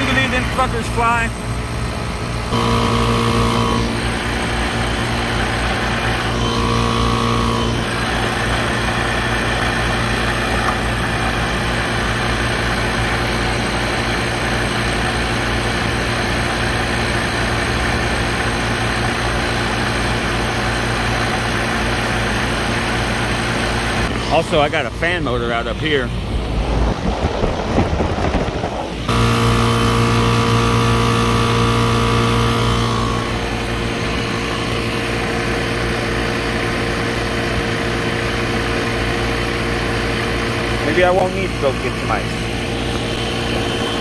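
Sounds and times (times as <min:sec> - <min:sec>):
steady hum: 0:00.0 - 0:17.6, 0:22.9 - 0:44.0
refrigerant recovery machine running: 0:00.0 - 0:44.0
pitched tone: 0:02.5 - 0:04.8, 0:05.7 - 0:08.0.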